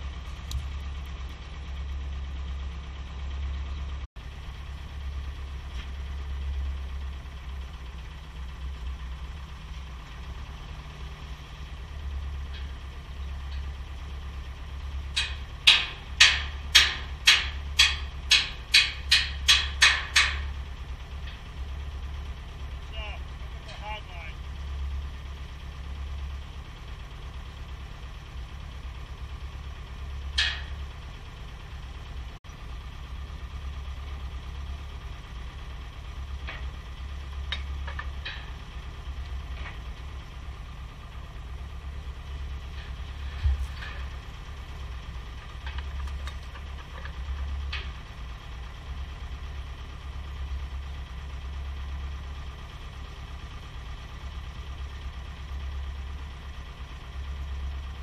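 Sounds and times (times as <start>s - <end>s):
engine idling: 0.0s - 58.0s
heavy thump: 43.3s - 44.0s.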